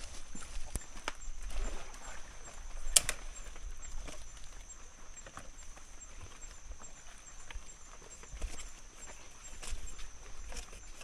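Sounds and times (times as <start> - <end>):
hand rustling in leaf litter: 0.0 - 1.1
night insects chirping: 0.0 - 11.0.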